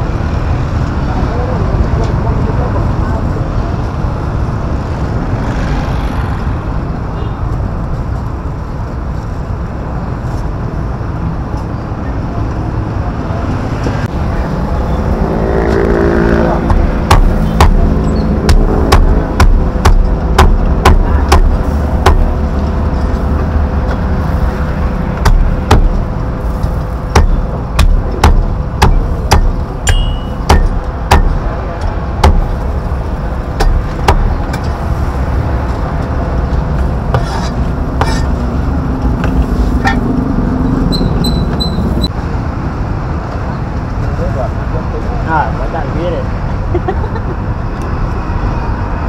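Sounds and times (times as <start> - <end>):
low background din: 15.7 - 40.2
cleaver chopping on chopping block: 16.7 - 22.3, 25.2 - 26.0, 27.1 - 31.4, 32.2 - 32.5, 33.6 - 34.4.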